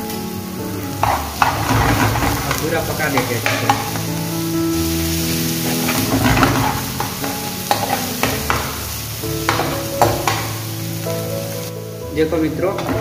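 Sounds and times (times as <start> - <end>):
onions sizzling in a pan: 0.0 - 13.0
spoon clinking and scraping a pan: 1.0 - 4.1, 5.6 - 10.6.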